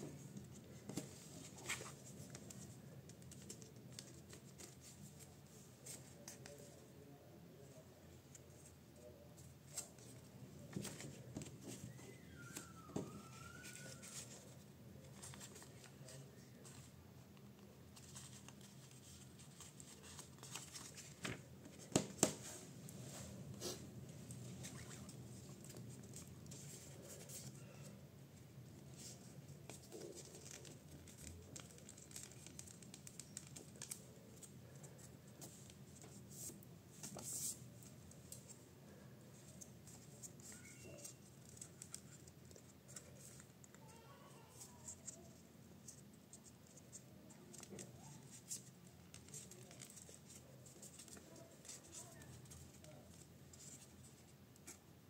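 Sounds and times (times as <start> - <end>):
paper rustling and crinkling: 9.4 - 16.9, 18.0 - 22.6, 29.0 - 43.5, 44.5 - 54.8.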